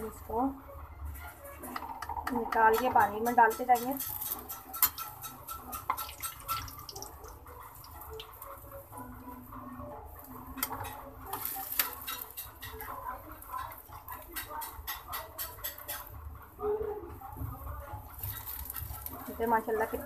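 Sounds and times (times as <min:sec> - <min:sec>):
oil sizzling deep-frying: 0:01.2 - 0:16.4, 0:17.5 - 0:20.0
metal spatula scraping pan: 0:01.5 - 0:06.9, 0:10.2 - 0:16.3, 0:18.0 - 0:20.0.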